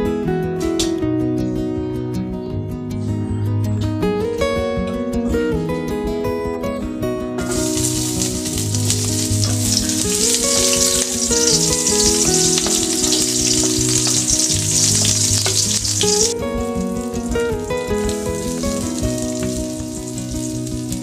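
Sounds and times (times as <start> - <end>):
background music: 0.0 - 21.0
food sizzling in a pan: 7.4 - 21.0.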